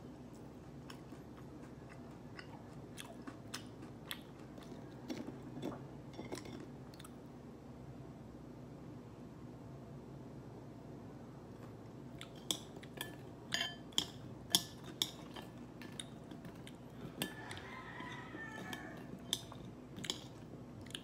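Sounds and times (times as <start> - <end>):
metal chopsticks clinking on bowl: 13.0 - 15.4.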